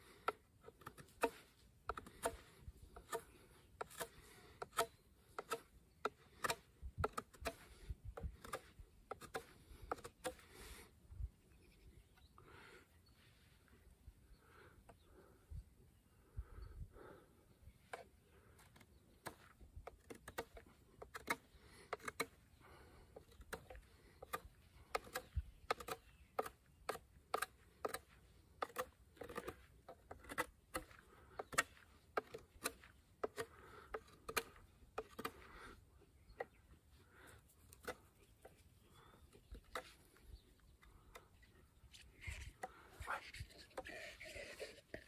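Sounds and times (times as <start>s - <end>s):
knife cutting clicks and scrapes: 0.2s - 10.5s, 18.6s - 22.4s, 23.2s - 35.5s.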